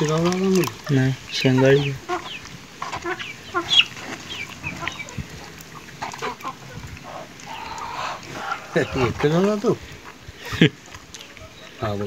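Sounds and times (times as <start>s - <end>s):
fish clicking in plastic tub: 0.0s - 8.3s
chickens clucking: 0.0s - 12.0s.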